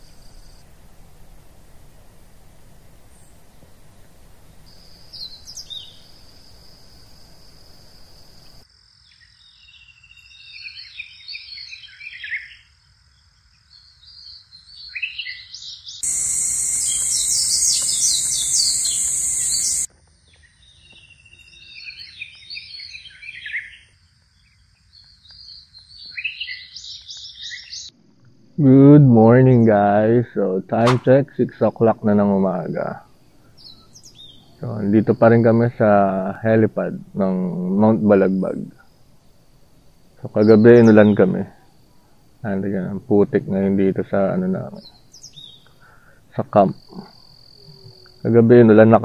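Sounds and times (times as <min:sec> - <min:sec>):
high-pitched hiss with fast chirps: 0:00.0 - 0:12.0, 0:12.8 - 0:19.9, 0:24.3 - 0:49.0
birds singing warbled phrases: 0:04.7 - 0:06.4, 0:14.8 - 0:19.9, 0:40.2 - 0:41.5.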